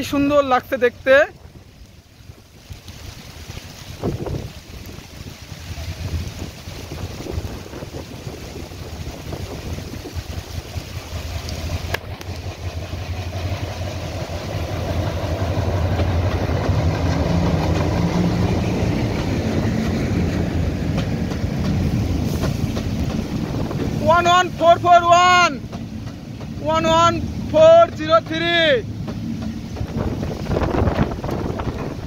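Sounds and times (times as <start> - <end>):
locomotives rolling past: 0.0 - 32.0
diesel engines droning: 10.3 - 32.0.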